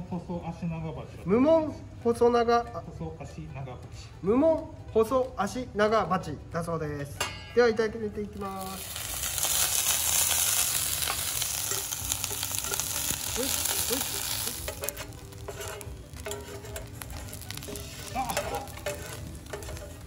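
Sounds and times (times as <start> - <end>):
food sizzling in hot oil: 8.3 - 20.0
utensils scraping a pan: 8.6 - 20.0.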